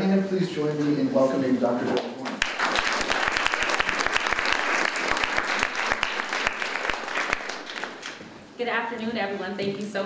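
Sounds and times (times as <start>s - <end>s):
audience applauding: 2.2s - 8.2s.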